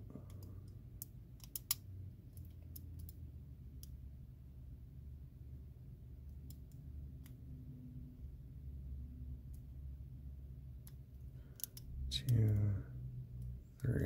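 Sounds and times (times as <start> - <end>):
faint low hum: 0.0 - 14.0
lock pick clicking pins: 0.3 - 1.8, 11.5 - 12.7.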